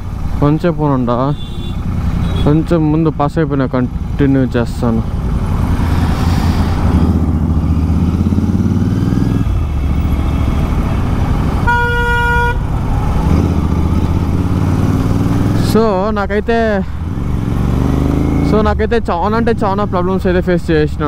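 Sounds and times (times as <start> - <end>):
motorcycle engine running: 0.0 - 21.0
vehicle horn honking: 1.2 - 2.7, 11.6 - 12.7.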